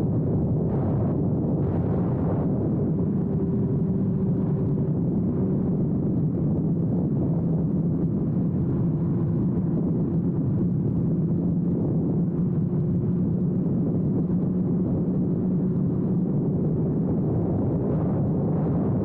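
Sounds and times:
motorcycle engine cruising: 0.2 - 16.9.

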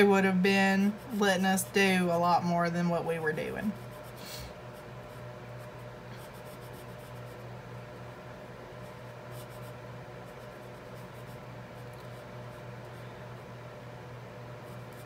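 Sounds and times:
marker scratching on paper: 3.4 - 7.5, 8.8 - 13.0.

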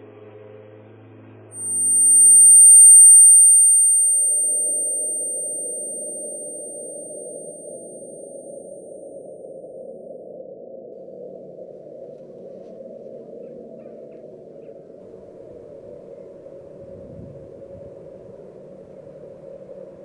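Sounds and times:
low steady drone: 1.5 - 20.0
high-pitched electronic ringing tone: 1.6 - 10.0.

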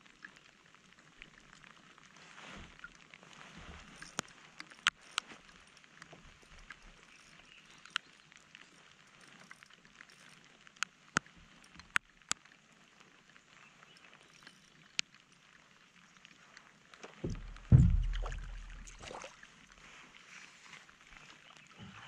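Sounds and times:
light rain hissing on a lake: 0.0 - 22.0
raindrops ticking: 9.8 - 12.5, 16.5 - 19.0.

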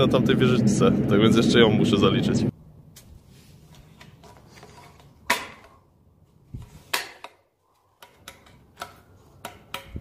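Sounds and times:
sharp knocks and clicks: 8.0 - 10.0.

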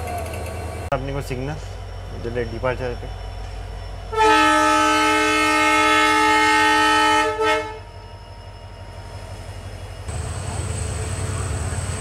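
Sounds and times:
diesel locomotive horn: 4.1 - 7.9.

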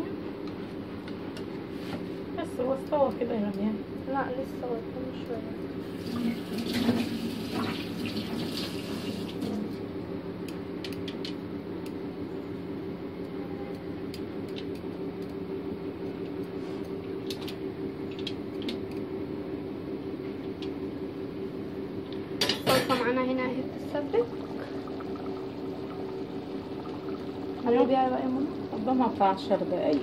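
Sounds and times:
steady low hum: 9.4 - 30.0
water bubbling in a pot: 22.7 - 30.0.

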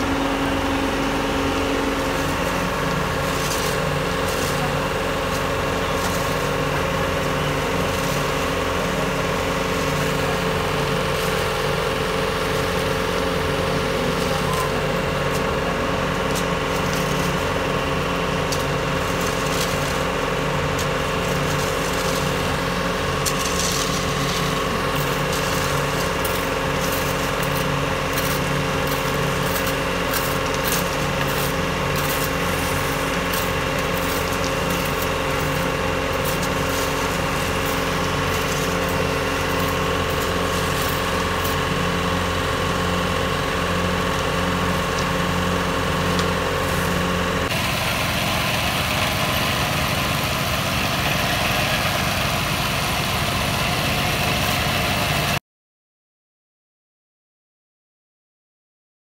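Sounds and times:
small petrol engine running: 0.0 - 55.4
shovels scraping wet concrete: 0.6 - 47.6.

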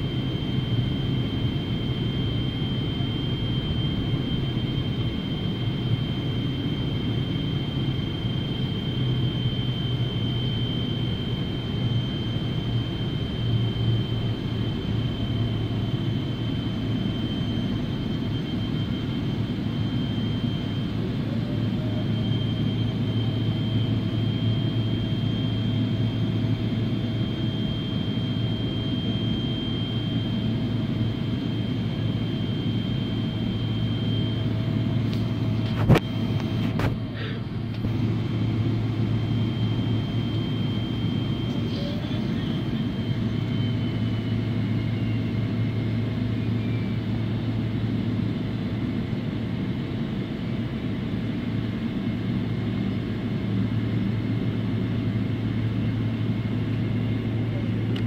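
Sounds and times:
aircraft cabin low hum: 0.0 - 58.0
faint high whine: 0.0 - 58.0.

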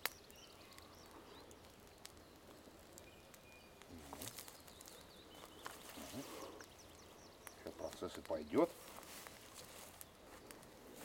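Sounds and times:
bird chirps: 0.0 - 8.6.

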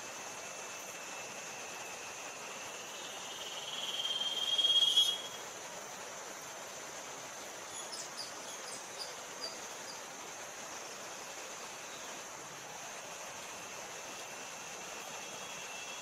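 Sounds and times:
insect buzzing trill: 0.0 - 5.5, 12.8 - 16.0
high-pitched insect drone: 0.0 - 5.6, 7.7 - 16.0.

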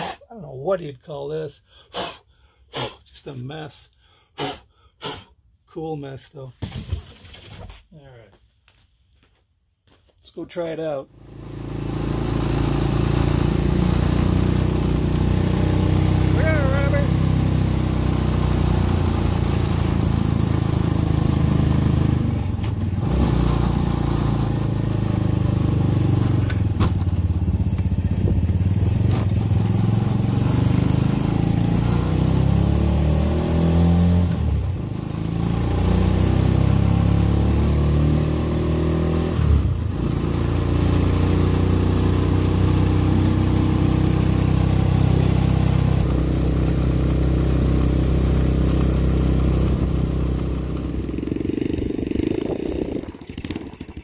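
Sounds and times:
small engine accelerating: 11.1 - 54.0.

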